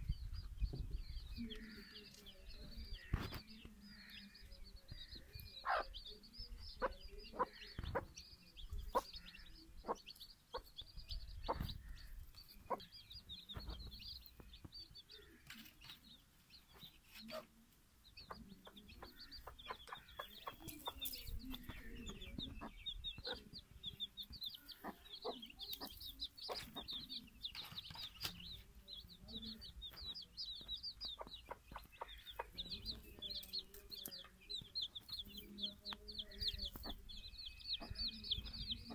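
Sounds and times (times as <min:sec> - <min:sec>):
chicks peeping: 0:00.0 - 0:38.9
hen clucking: 0:05.2 - 0:06.0, 0:06.6 - 0:14.6, 0:16.8 - 0:38.9.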